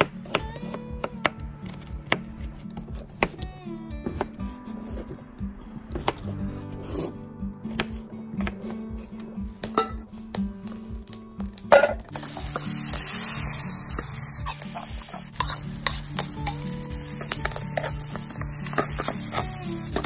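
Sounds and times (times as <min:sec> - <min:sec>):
butter sizzling in frying pan: 0:12.1 - 0:19.9.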